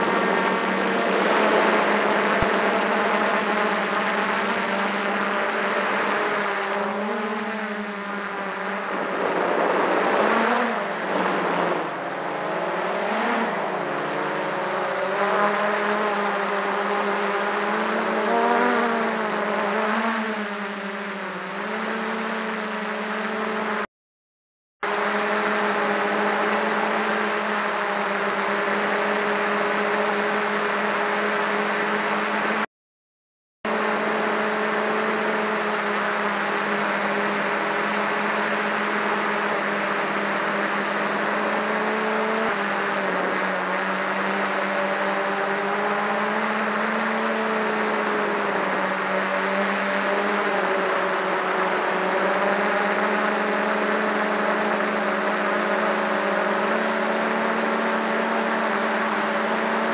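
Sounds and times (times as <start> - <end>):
steady rushing noise: 0.0 - 15.3
drone propellers buzzing: 0.0 - 23.8, 24.8 - 32.6, 33.7 - 59.9.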